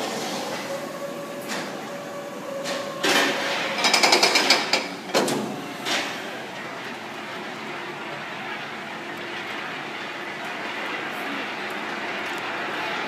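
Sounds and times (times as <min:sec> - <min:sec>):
coaster train metallic clanks: 0:02.6 - 0:06.2.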